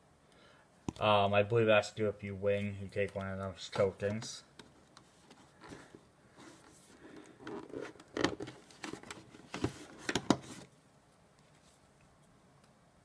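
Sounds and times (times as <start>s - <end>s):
cardboard scraping and rustling: 5.1s - 10.7s.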